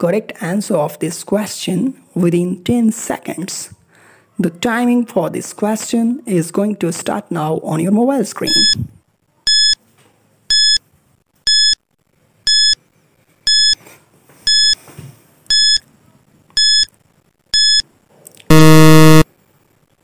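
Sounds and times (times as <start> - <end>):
short electronic beeps: 8.5 - 8.8, 16.6 - 16.9, 18.5 - 19.2
low buzzer: 18.5 - 19.3.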